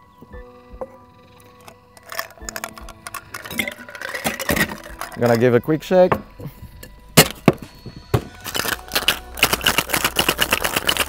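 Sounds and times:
ice cubes clinking into metal tin: 1.6 - 5.6, 8.4 - 11.0
ice rattling in shaken shaker: 2.0 - 5.5, 8.4 - 11.0.

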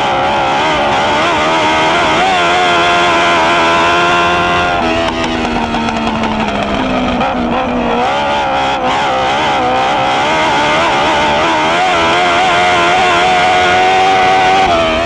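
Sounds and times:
race car engine revving: 0.0 - 15.0.

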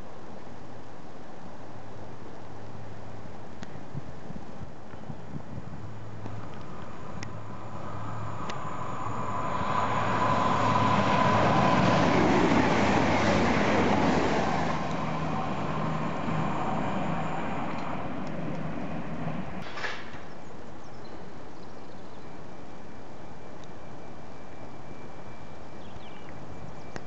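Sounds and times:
diesel train passing: 5.8 - 20.5, 22.2 - 27.0
train approaching: 5.9 - 19.8, 22.2 - 27.0.

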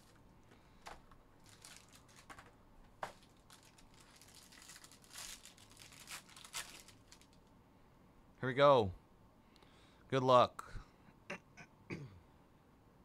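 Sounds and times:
foil pack crinkling and tearing: 0.8 - 7.4.

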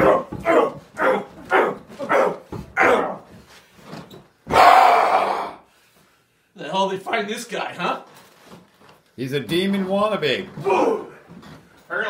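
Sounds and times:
short loud cries: 4.5 - 5.6.

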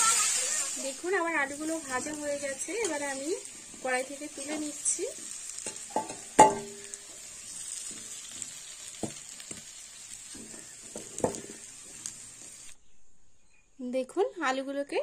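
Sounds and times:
food sizzling in hot oil: 0.0 - 12.8
metal spatula knocking pans: 4.4 - 7.0, 10.4 - 11.6.

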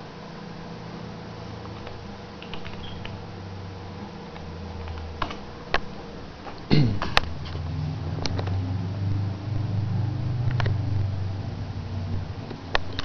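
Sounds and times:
server low hum: 0.0 - 13.0
sharp clicks: 1.7 - 3.2.

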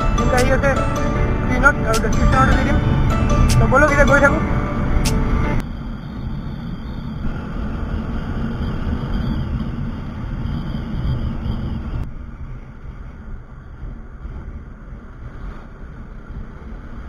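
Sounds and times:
motorcycle engine: 0.0 - 17.0
wind buffeting microphone: 4.8 - 17.0.

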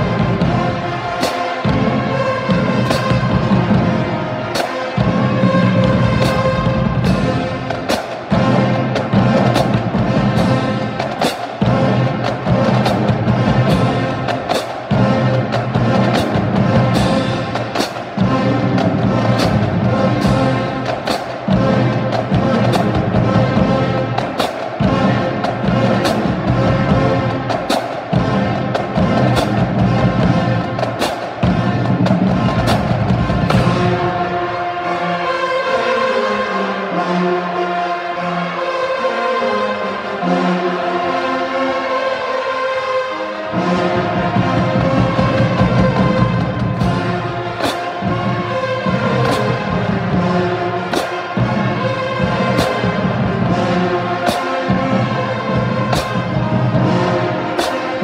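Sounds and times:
snare drums beating: 0.0 - 34.6, 44.0 - 58.0
bass drums beating: 5.0 - 34.4.

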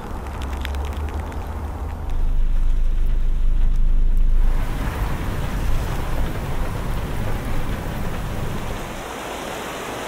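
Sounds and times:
low rumble: 0.0 - 9.0
light rain pattering: 0.0 - 10.0.

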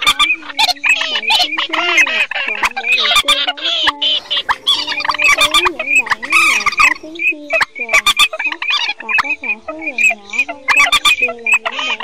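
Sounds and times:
waterbird calls: 0.0 - 12.0
low wavering nasal calls: 2.9 - 11.4.

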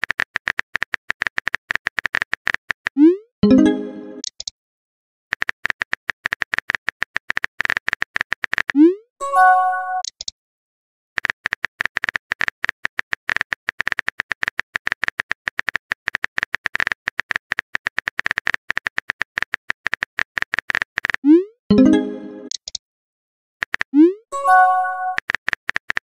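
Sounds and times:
keyboard typing clicks: 0.0 - 4.5, 9.9 - 10.3, 11.2 - 22.8, 23.6 - 26.0.

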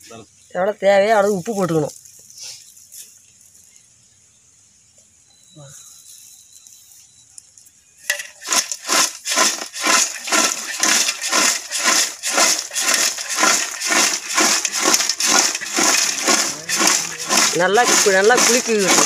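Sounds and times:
chips crunching in metal pot: 8.1 - 19.0.

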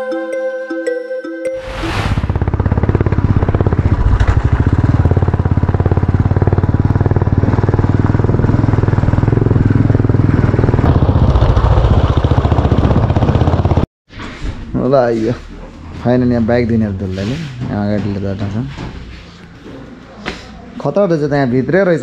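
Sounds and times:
rushing noise: 1.6 - 5.3
motorcycle engine running: 2.0 - 13.9.

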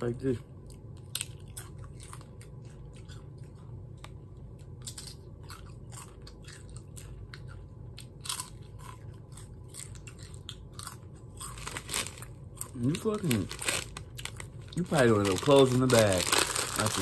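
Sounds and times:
steady low hum: 0.0 - 17.0
tortilla chips crunching: 4.8 - 17.0.

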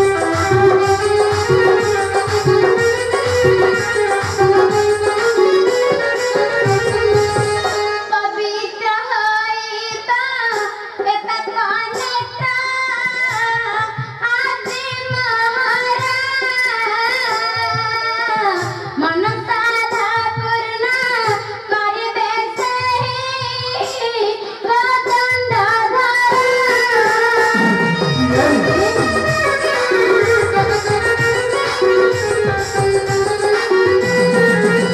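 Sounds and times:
instrumental accompaniment with drums: 0.0 - 34.9
girl singing: 8.1 - 17.4, 19.0 - 27.5.

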